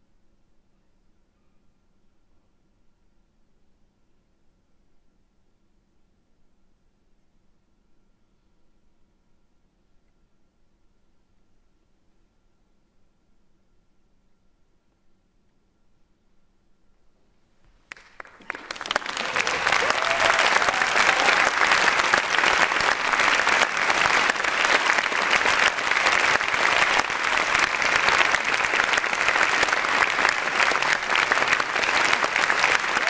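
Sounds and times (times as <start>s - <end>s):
audience applauding: 17.9s - 33.0s.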